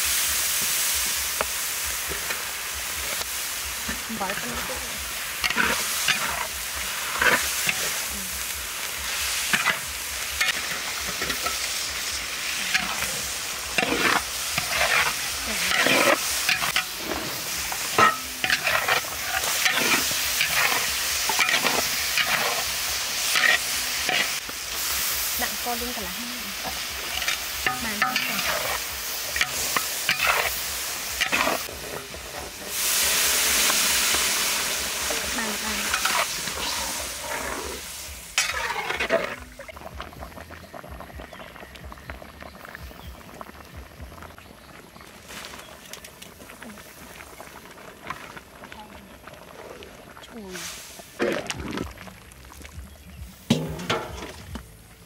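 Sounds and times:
vegetables sizzling in wok: 0:00.0 - 0:55.0
water hissing in hot wok: 0:00.0 - 0:55.0
metal spatula scraping wok: 0:03.0 - 0:25.7, 0:26.5 - 0:39.7, 0:53.5 - 0:54.5.

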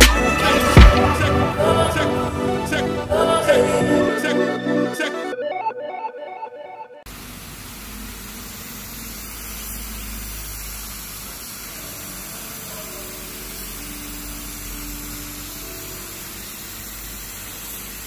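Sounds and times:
background music: 0:00.0 - 0:07.0
paint spray gun hissing: 0:07.1 - 0:18.0.

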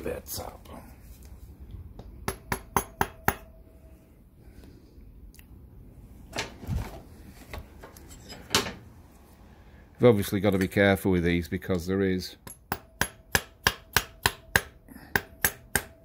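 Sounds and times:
sharp metal taps: 0:12.4 - 0:16.0.

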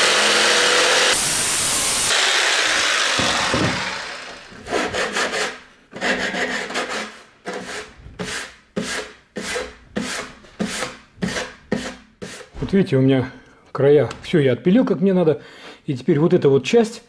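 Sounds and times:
electric jigsaw running down: 0:00.0 - 0:04.6
hand tool rubbing on wood: 0:04.6 - 0:12.6.

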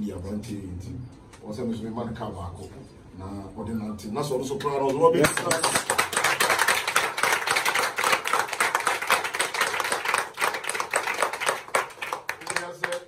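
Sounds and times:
people applauding: 0:05.0 - 0:13.0.

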